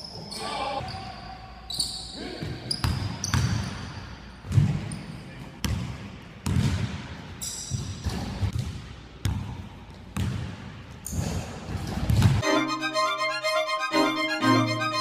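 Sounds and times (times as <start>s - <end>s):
shoe squeaks: 0.0s - 3.9s, 7.4s - 8.0s
basketball bouncing on hardwood floor: 5.6s - 7.0s, 10.2s - 10.6s.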